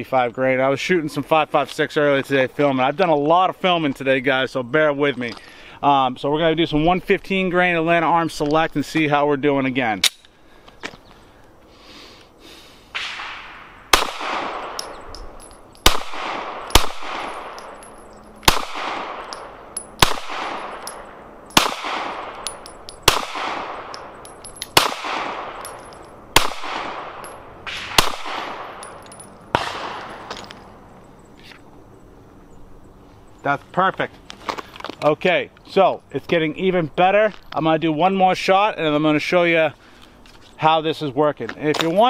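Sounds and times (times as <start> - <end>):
pistol shots with echo: 13.0 - 30.3.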